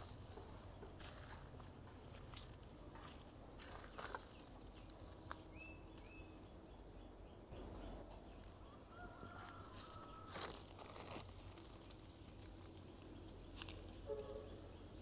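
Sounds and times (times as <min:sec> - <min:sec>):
high insect drone: 0:00.0 - 0:15.0
bird chirping: 0:03.8 - 0:08.5.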